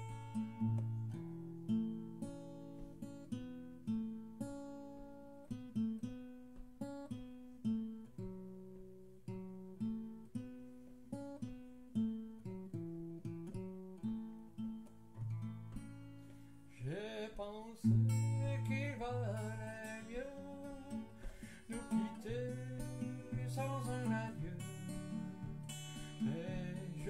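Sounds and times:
acoustic guitar chords strummed: 0.0s - 27.0s.

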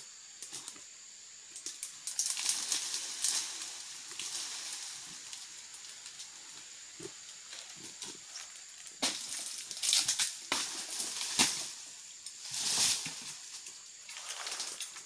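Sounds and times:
dry palm fronds crackling: 1.6s - 15.0s.

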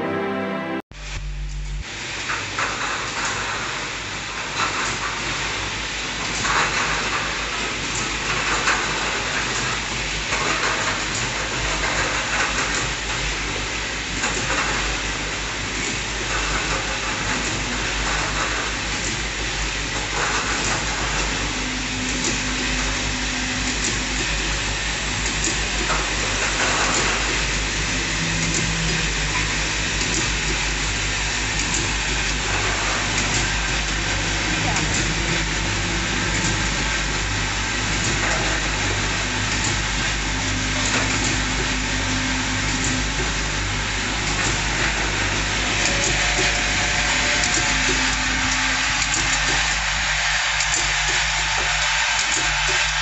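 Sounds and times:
conveyor mechanical hum: 0.0s - 53.0s.

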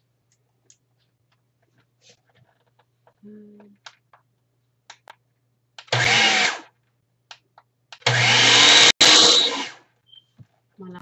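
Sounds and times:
blender motor pulsing: 5.9s - 6.7s, 8.0s - 9.8s.

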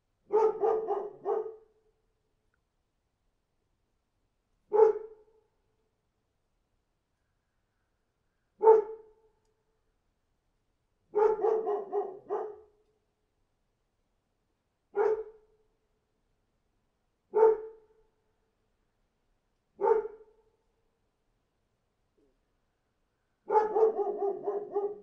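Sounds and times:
dog barking: 0.3s - 1.7s, 4.7s - 5.2s, 8.6s - 9.2s, 11.1s - 12.7s, 14.9s - 15.4s, 17.3s - 17.8s, 19.8s - 20.3s, 23.5s - 25.0s.

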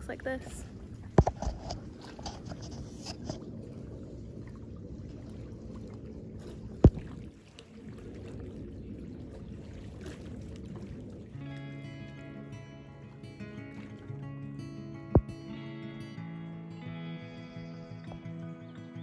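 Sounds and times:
small waves lapping on rocks: 0.0s - 14.2s.

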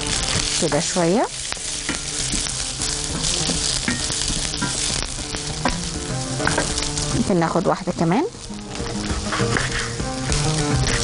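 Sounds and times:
food sizzling in oil: 0.0s - 11.0s
wooden spatula scraping a pan: 8.9s - 11.0s.

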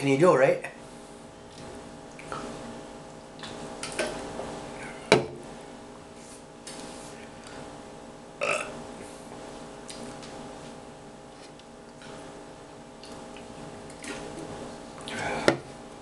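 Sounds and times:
man burping: 8.4s - 8.8s.

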